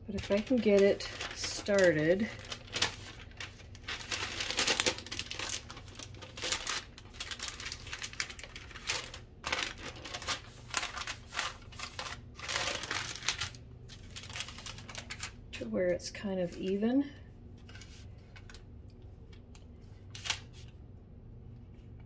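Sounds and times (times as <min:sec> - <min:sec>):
parchment paper crinkling: 0:00.0 - 0:15.7, 0:19.3 - 0:20.8.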